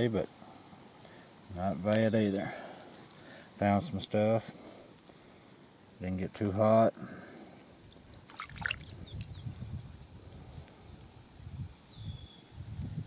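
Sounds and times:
water sloshing and trickling: 0:08.0 - 0:09.4.

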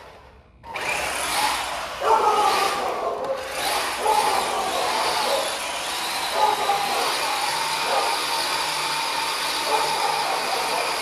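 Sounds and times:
electric motor and gears whining: 0:00.0 - 0:11.0.

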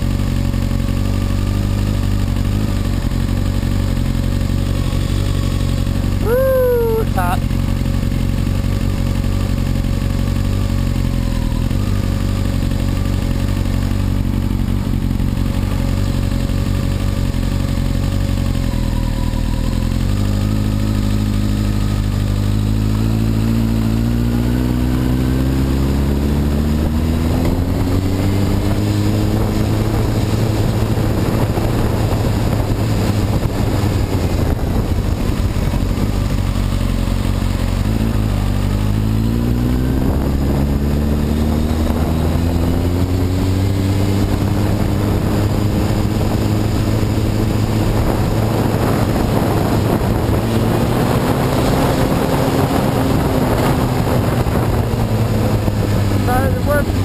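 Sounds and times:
motorcycle engine: 0:00.0 - 0:57.0
wind noise: 0:25.1 - 0:36.4, 0:39.0 - 0:57.0.

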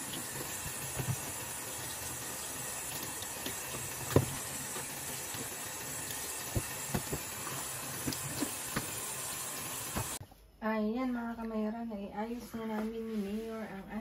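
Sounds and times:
tap water running into sink: 0:00.0 - 0:10.2.

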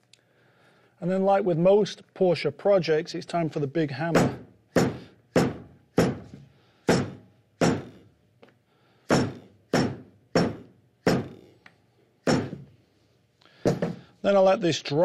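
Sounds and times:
mallet thudding on leather: 0:04.2 - 0:08.0, 0:09.1 - 0:11.5, 0:12.2 - 0:12.7.

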